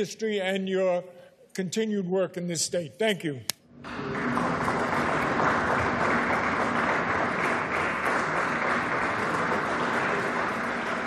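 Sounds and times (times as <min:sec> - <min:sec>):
crowd applauding: 0:03.8 - 0:11.0.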